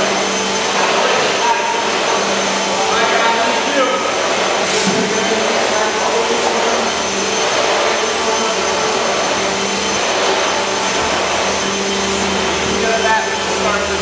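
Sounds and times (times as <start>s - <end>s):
vacuum cleaner running: 0.0s - 14.0s.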